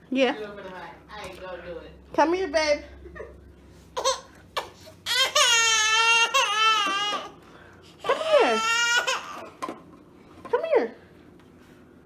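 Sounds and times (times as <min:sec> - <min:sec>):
baby crying: 0:04.0 - 0:07.4, 0:08.0 - 0:09.6.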